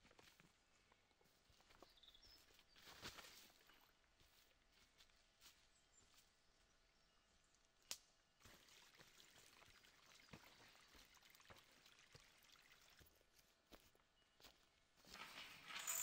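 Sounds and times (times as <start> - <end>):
footsteps crunching through dry leaves: 2.8 - 5.6.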